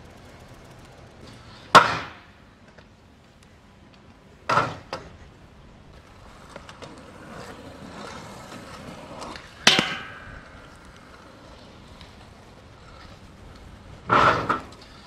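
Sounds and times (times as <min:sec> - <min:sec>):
scooter clacking on grind rail: 0:00.0 - 0:02.9, 0:06.0 - 0:15.0
scooter clattering on ground: 0:00.0 - 0:15.0
scooter wheels rolling on asphalt: 0:00.0 - 0:15.0.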